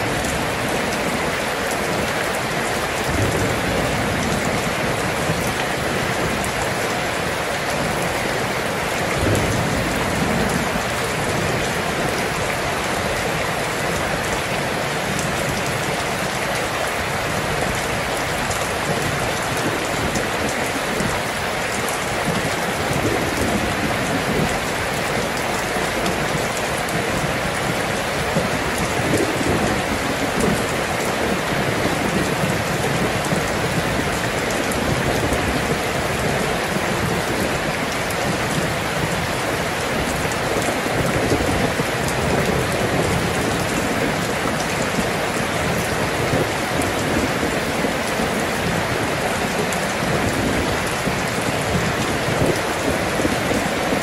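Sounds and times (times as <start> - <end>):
steady rain: 0.0 - 54.0.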